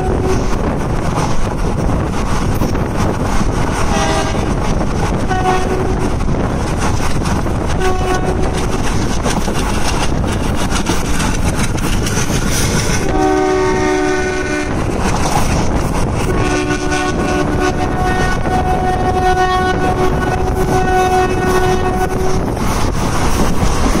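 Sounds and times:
locomotive horn blasts: 0:00.0 - 0:00.5, 0:03.9 - 0:04.6, 0:05.2 - 0:06.1, 0:07.8 - 0:08.8, 0:13.0 - 0:14.8, 0:16.3 - 0:22.5
train wheels clickety-clack: 0:00.0 - 0:24.0.

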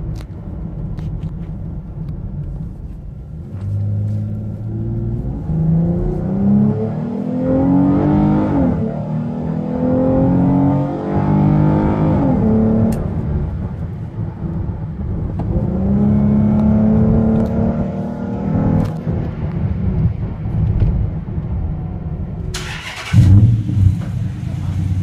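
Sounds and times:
car engine accelerating: 0:03.4 - 0:13.8, 0:14.4 - 0:20.3, 0:22.5 - 0:25.0.

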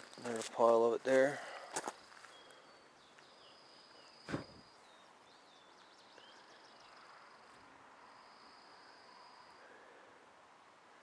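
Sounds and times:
faint high-pitched chirping: 0:02.0 - 0:09.9
thump: 0:04.2 - 0:04.6.

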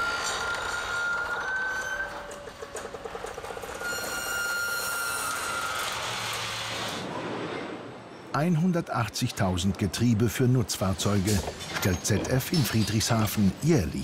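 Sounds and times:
vehicle high-pitched whine: 0:00.0 - 0:08.0.

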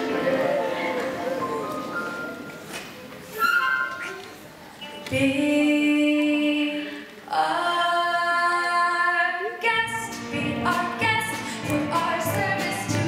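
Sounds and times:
choir singing: 0:00.0 - 0:02.5
orchestra of strings and winds: 0:00.0 - 0:02.6.

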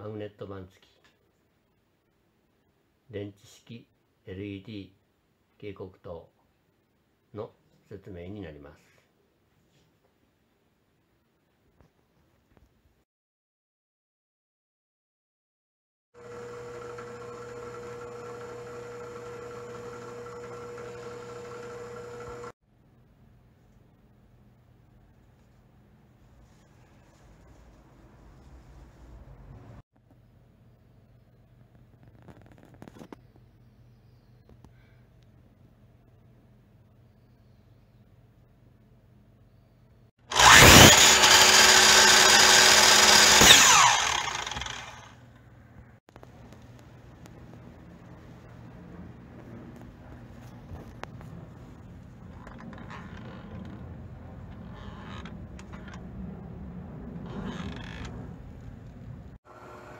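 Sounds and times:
drill press motor humming: 0:16.2 - 0:22.6, 0:40.3 - 0:45.2, 0:59.5 - 0:59.9
electric miter saw whining: 0:16.2 - 0:22.6, 0:40.3 - 0:45.2, 0:59.5 - 0:59.9
saw blade cutting wood: 0:40.3 - 0:45.2.

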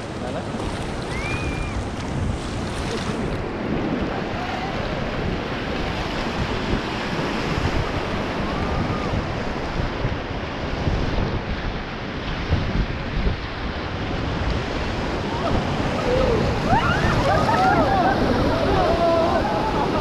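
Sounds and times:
whitewater rushing and churning: 0:00.0 - 0:20.0
wind buffeting microphone: 0:00.0 - 0:20.0.

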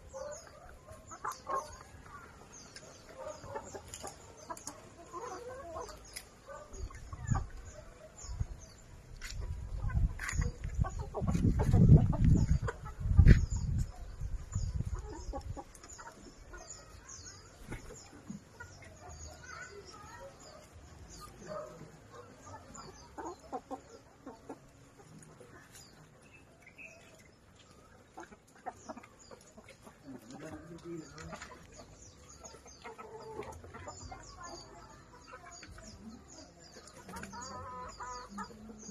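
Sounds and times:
chickens clucking: 0:00.0 - 0:38.9
low rumble on microphone: 0:06.8 - 0:15.6.

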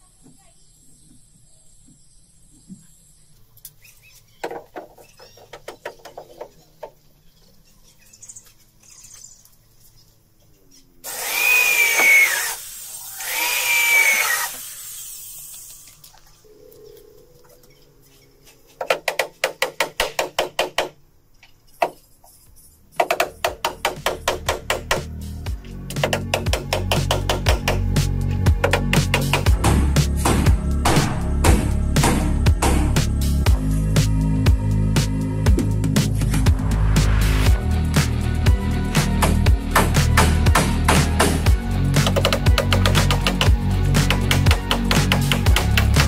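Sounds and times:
power tool cutting wood: 0:11.0 - 0:15.9.

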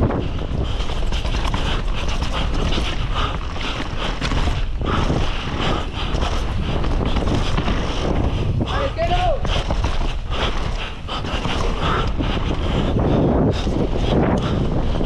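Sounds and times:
bike chain and frame clattering: 0:00.0 - 0:08.3
tyres rumbling and skidding on dirt: 0:00.0 - 0:15.0
wind buffeting microphone: 0:00.0 - 0:15.0.

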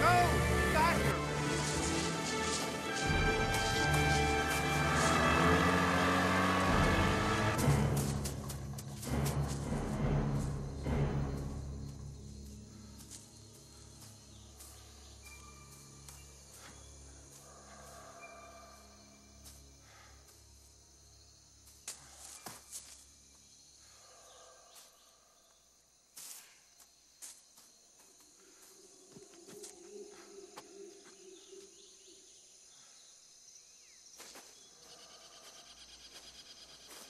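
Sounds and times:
high insect drone: 0:00.0 - 0:37.0
bird chirps: 0:13.4 - 0:17.1.

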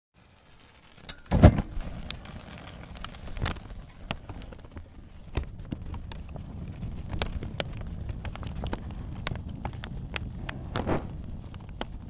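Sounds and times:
fire crackling and popping: 0:00.2 - 0:12.0
low rumble: 0:05.6 - 0:12.0
loud low whoosh: 0:10.4 - 0:11.3.

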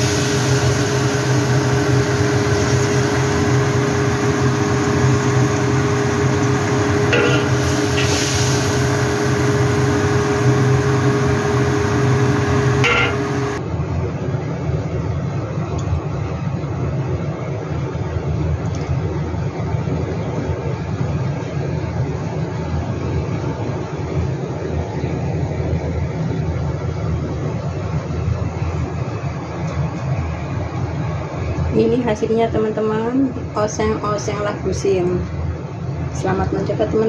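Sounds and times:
hiss: 0:00.0 - 0:13.6
kitchen hum: 0:00.0 - 0:13.6
metal spatula scraping wok: 0:07.1 - 0:08.5.

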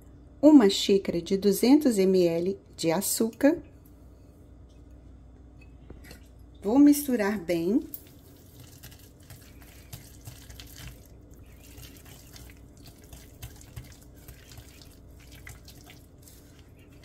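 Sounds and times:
whisk squishing wet mix: 0:08.0 - 0:17.0.

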